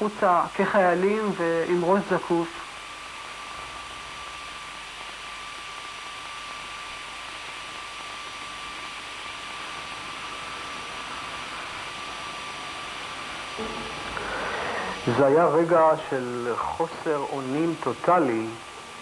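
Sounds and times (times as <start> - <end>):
tape hiss with high tone: 0.0 - 19.0.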